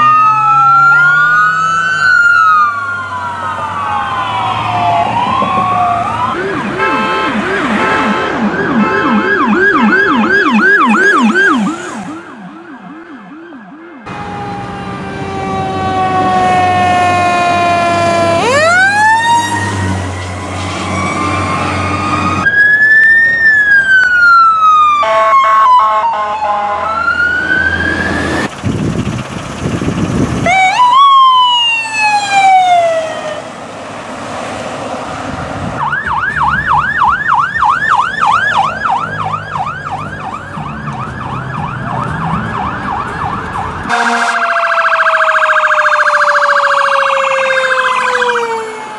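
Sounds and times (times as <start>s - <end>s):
emergency vehicle sirens: 0.0s - 48.9s
engine rumble: 26.9s - 43.9s.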